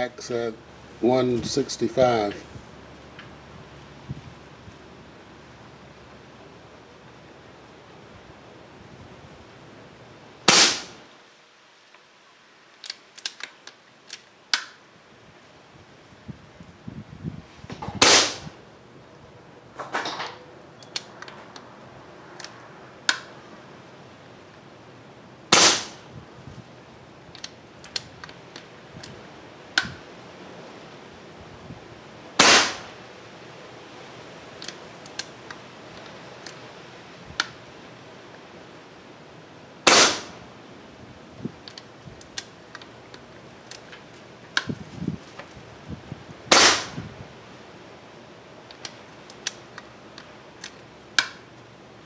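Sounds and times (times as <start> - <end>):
air rifle shots cracking: 10.4 - 11.0, 17.9 - 18.6, 25.5 - 26.1, 32.4 - 33.0, 39.8 - 40.5, 46.5 - 47.0.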